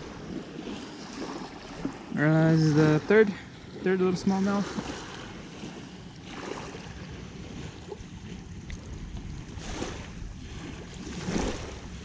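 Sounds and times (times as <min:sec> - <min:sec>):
small waves lapping shoreline: 0:00.0 - 0:12.0
wind on microphone: 0:04.3 - 0:12.0.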